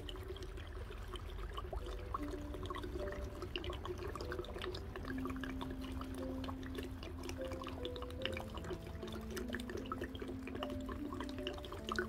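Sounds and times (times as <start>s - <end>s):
liquid glugging into jar: 0.0s - 12.0s.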